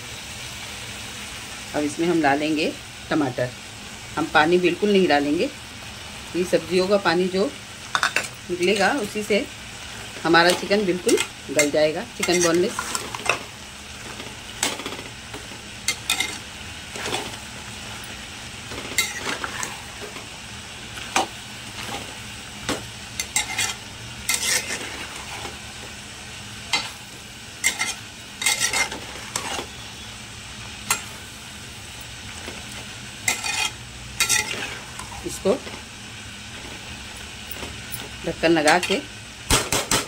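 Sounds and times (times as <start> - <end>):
food sizzling: 0.0 - 40.0
spatula scraping metal pot: 10.5 - 13.4, 23.2 - 25.5, 27.6 - 29.8, 33.3 - 35.2.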